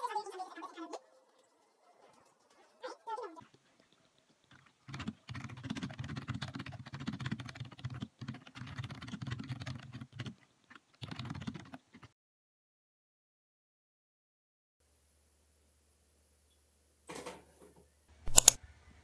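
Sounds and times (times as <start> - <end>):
fast keyboard typing: 4.5 - 12.1, 18.3 - 18.6.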